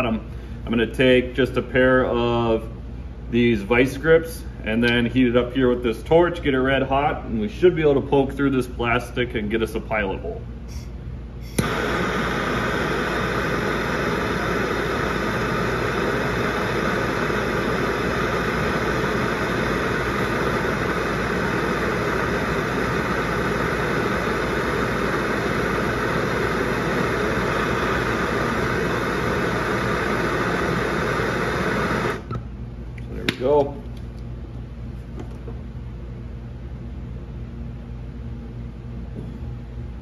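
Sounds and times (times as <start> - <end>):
gas torch ignition click: 4.8 - 5.1, 11.4 - 34.2
gas torch flame hissing: 10.7 - 32.4.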